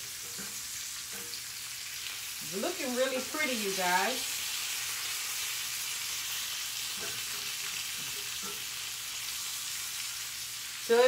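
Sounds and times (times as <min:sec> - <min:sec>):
meat sizzling in a skillet: 0:00.0 - 0:11.0.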